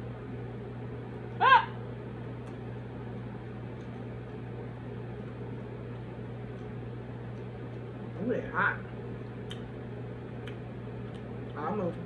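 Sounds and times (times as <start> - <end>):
steady low hum: 0.0 - 12.0
short high vocal sound: 1.4 - 1.8.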